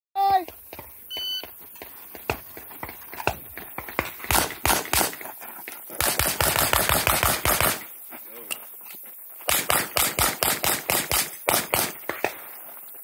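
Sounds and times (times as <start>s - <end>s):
pistol shots: 4.3s - 5.2s, 6.0s - 7.9s, 9.5s - 12.4s.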